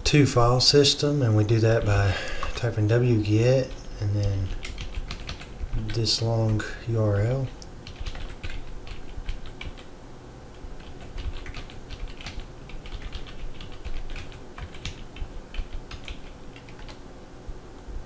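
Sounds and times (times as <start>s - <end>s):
computer keyboard typing: 3.4s - 6.7s, 7.3s - 9.9s, 10.8s - 17.0s.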